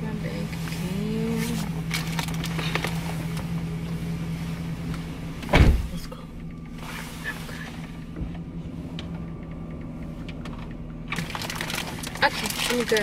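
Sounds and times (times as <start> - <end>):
low hum inside a car: 0.0 - 13.0
heavy thump: 5.4 - 6.1.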